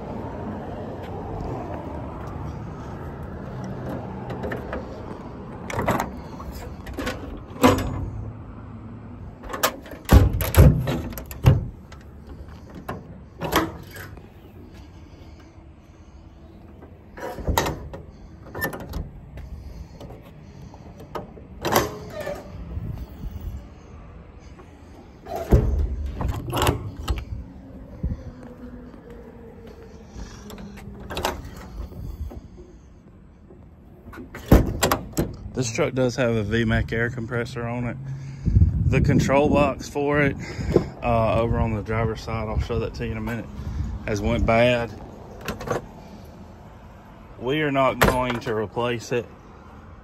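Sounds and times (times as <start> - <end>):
metal doors and latches clunking: 3.5 - 8.3, 9.3 - 14.3, 16.7 - 23.0, 24.4 - 27.5, 30.4 - 32.6, 33.5 - 35.6, 45.3 - 46.1, 47.9 - 48.6
metal door swinging open: 5.7 - 8.2, 9.4 - 11.8, 17.2 - 19.2, 21.1 - 22.6, 25.2 - 27.3, 34.1 - 35.4
latch clicks and knocks: 9.5 - 11.7, 34.2 - 35.4
metal door slamming: 9.5 - 11.8, 25.3 - 27.1, 34.4 - 35.4.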